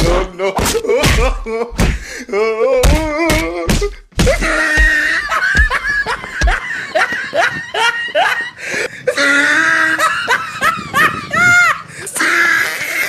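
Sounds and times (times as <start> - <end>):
low thumps: 2.8 - 6.6
laughter in rising peals: 4.5 - 11.9.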